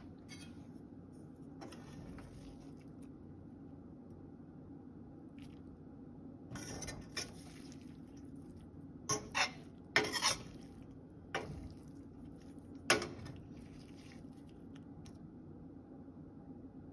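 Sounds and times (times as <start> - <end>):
metal spoon scraping frying pan: 0.0 - 0.7, 6.5 - 7.6, 9.1 - 10.8.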